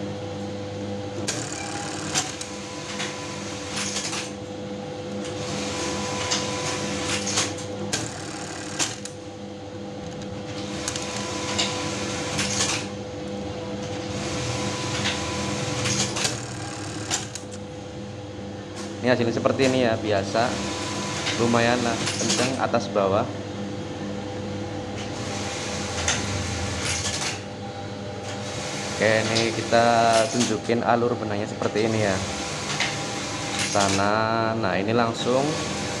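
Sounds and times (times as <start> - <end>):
rapid machine stitching: 1.2 - 4.2, 5.4 - 9.2, 14.1 - 17.5
sharp machine clacks: 1.2 - 4.3, 6.2 - 9.2, 14.9 - 17.6
sewing machine motor hum: 1.2 - 4.4, 5.1 - 9.3, 10.0 - 17.6.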